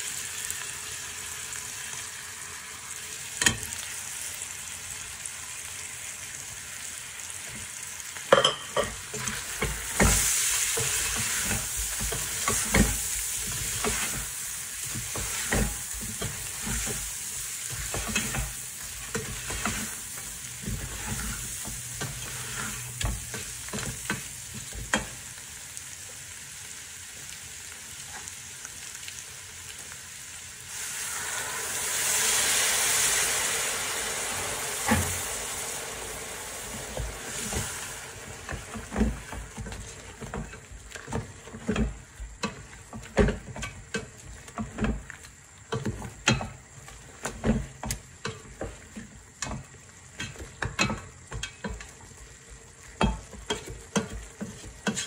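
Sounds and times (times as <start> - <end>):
meat and onions sizzling in oil: 0.0 - 55.0
wooden spoon scraping a pot: 8.9 - 25.1, 53.0 - 55.0.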